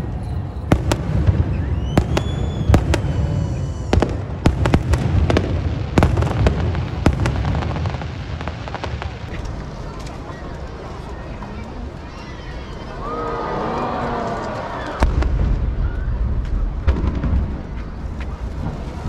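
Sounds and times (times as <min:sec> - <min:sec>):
firework whistle: 0:00.0 - 0:05.4
firework bangs and crackles: 0:00.0 - 0:11.8, 0:14.8 - 0:19.0.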